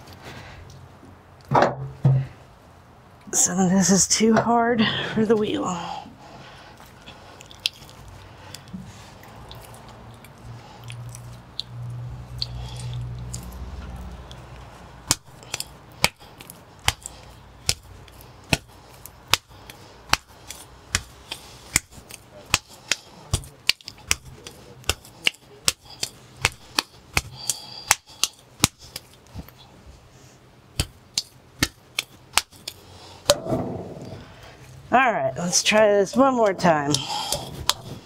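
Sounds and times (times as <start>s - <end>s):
wet clay slapped between palms: 15.0s - 17.9s, 18.5s - 29.0s, 30.7s - 33.4s.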